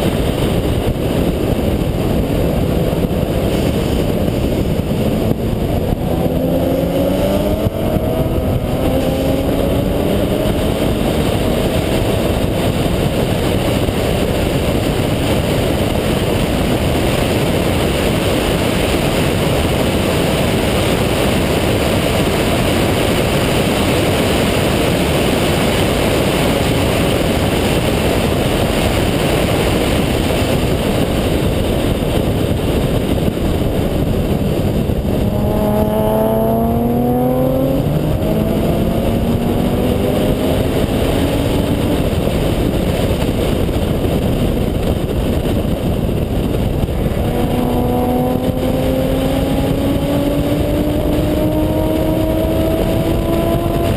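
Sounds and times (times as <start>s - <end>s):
rotary engine revving: 0.1s - 16.0s, 33.6s - 43.4s, 46.0s - 53.9s.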